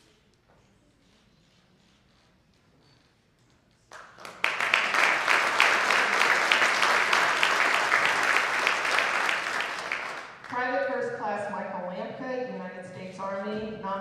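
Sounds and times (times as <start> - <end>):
audience applauding: 3.9 - 10.6.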